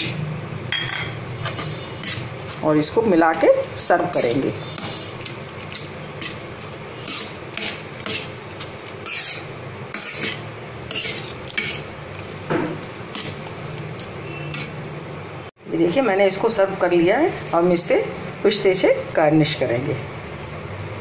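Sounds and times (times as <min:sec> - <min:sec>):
metal spoon scraping a pan: 0:00.0 - 0:14.8.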